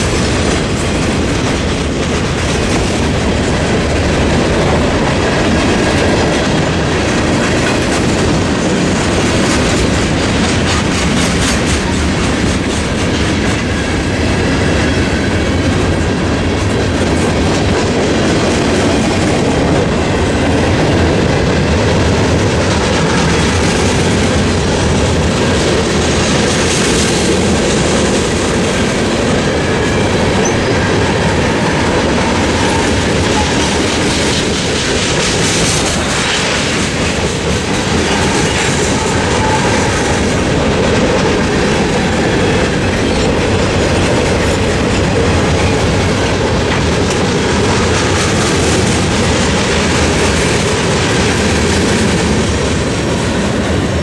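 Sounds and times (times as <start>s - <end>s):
wheels clacking over rail joints: 0.0s - 53.4s
freight train rolling past: 0.0s - 54.0s.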